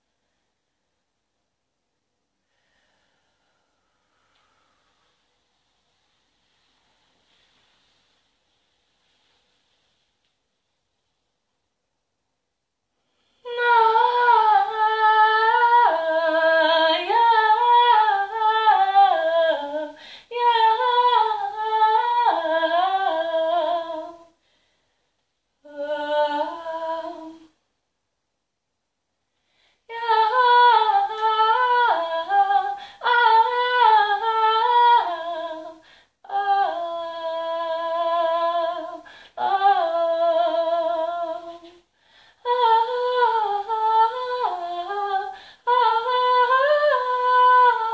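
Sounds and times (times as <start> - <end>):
woman singing wordless melody: 13.4 - 24.4, 25.6 - 27.6, 29.8 - 47.9.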